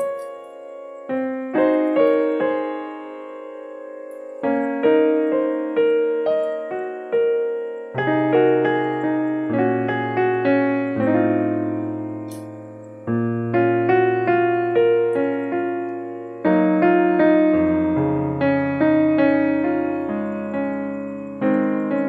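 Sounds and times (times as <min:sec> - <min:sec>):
gentle piano music: 0:00.0 - 0:22.0.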